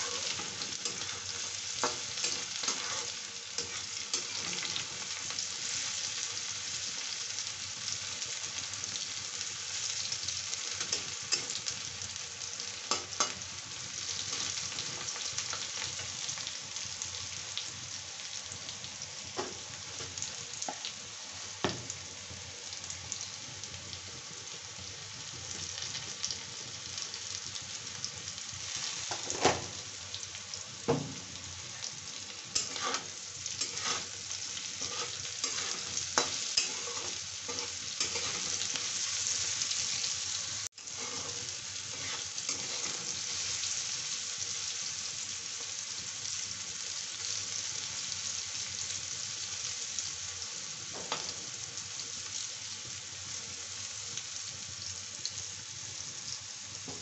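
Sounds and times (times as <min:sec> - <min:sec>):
vegetables sizzling in oil: 0:00.0 - 0:57.0
metal spatula clicks and scrapes: 0:32.6 - 0:34.1, 0:34.8 - 0:38.5.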